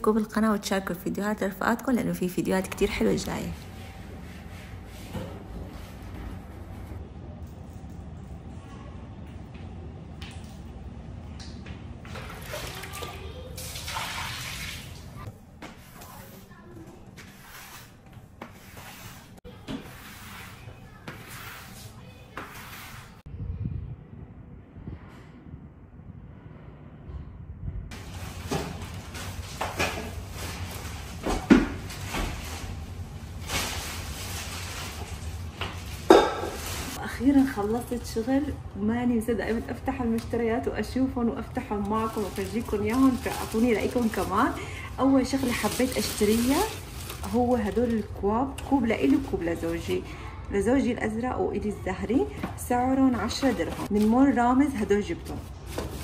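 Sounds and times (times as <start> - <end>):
tap water running and splashing: 12.0 - 15.2.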